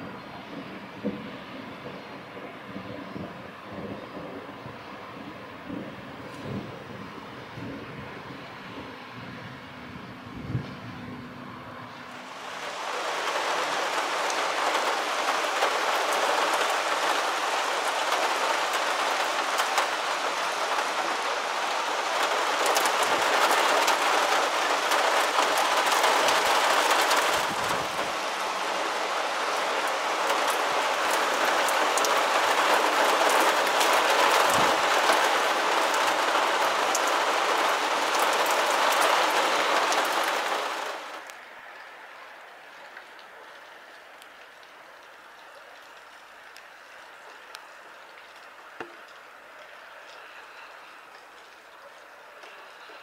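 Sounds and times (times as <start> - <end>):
heavy rain hissing: 12.1 - 53.0
sharp rain ticks: 12.1 - 53.0.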